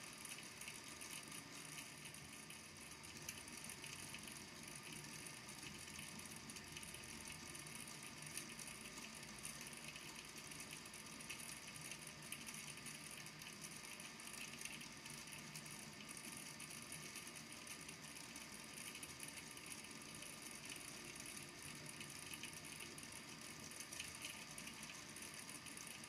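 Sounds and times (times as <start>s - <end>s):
small balls clicking in water tank: 0.0s - 26.0s.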